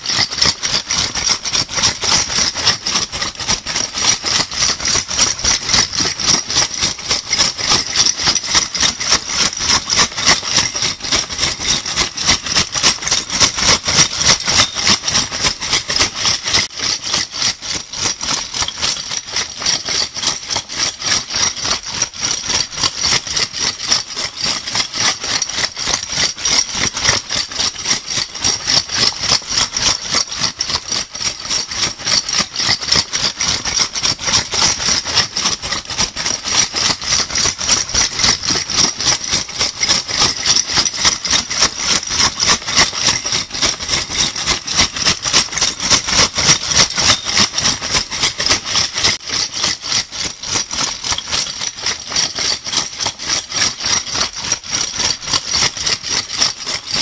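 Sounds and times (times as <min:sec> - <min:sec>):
bottle caps rattling: 0:45.9 - 0:47.6.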